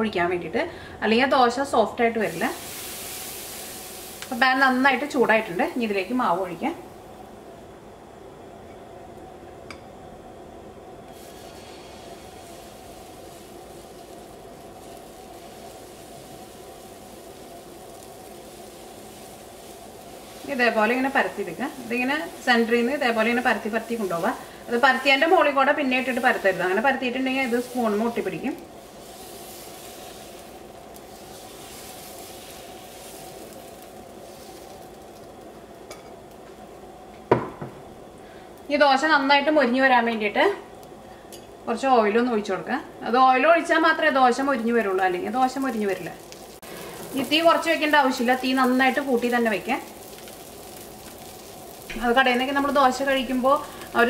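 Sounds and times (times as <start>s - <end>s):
batter hissing on hot pan: 2.2s - 7.2s, 11.1s - 36.5s, 44.1s - 54.0s.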